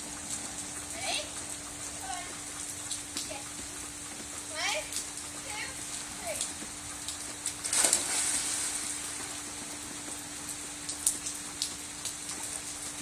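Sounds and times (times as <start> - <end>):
drips ticking: 0.0 - 7.6
rain hissing on water: 0.0 - 13.0
loud splash into pool: 7.6 - 9.0.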